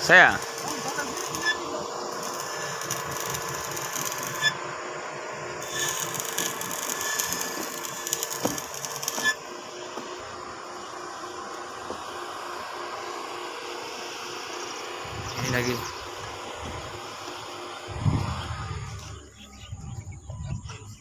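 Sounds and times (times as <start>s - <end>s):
arc welding crackling sizzle: 0.0s - 10.4s.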